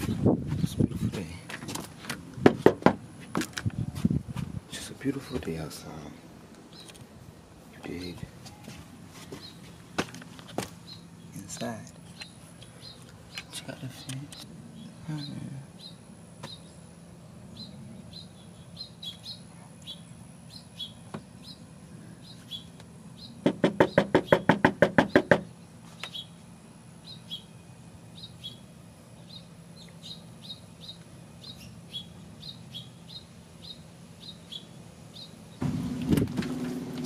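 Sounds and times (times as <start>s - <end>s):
small birds chirping: 0.0s - 2.6s, 3.6s - 36.0s
loud knocks on a door: 2.4s - 3.0s, 23.4s - 25.5s.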